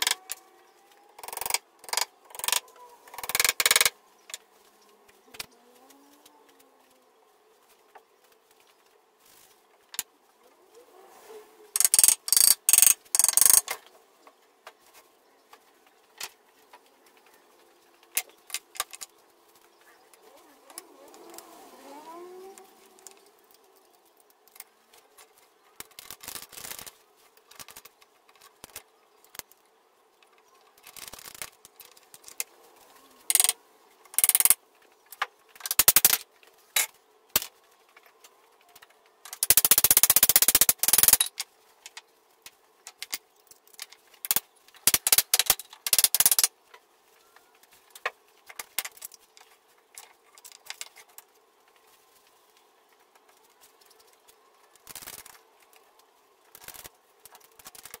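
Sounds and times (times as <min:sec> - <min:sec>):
ratchet strap clicks: 0:01.2 - 0:03.9, 0:11.8 - 0:13.8, 0:33.3 - 0:33.6, 0:34.2 - 0:34.6, 0:35.6 - 0:36.2, 0:39.3 - 0:41.4, 0:44.2 - 0:46.5
rattling run of ratchet clicks: 0:01.2 - 0:03.9, 0:11.8 - 0:13.8, 0:33.3 - 0:33.6, 0:34.2 - 0:34.6, 0:39.3 - 0:41.4, 0:44.2 - 0:46.5.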